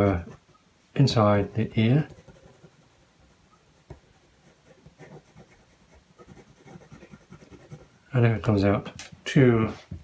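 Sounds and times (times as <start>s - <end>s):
pencil scratching on card: 1.7s - 3.2s, 3.8s - 8.0s.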